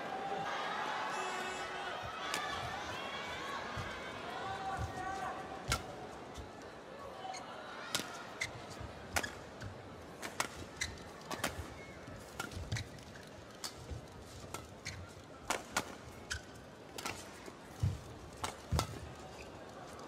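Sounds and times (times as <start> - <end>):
racket hitting shuttlecock: 5.6 - 5.9, 17.0 - 19.0
shoes squeaking on court: 10.4 - 13.3, 14.5 - 15.2.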